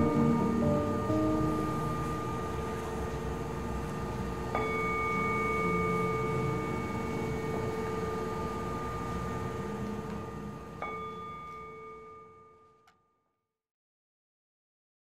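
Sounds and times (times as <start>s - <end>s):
singing bowl ringing: 0.0s - 13.4s.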